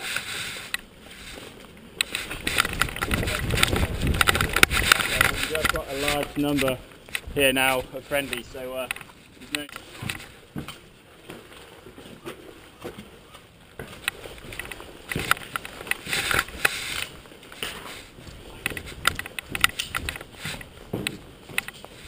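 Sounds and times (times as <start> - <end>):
gear rustling: 0.0 - 10.8, 13.8 - 22.0
sharp clicks and knocks: 2.0 - 7.4, 8.2 - 10.8, 13.8 - 17.8, 18.6 - 21.9.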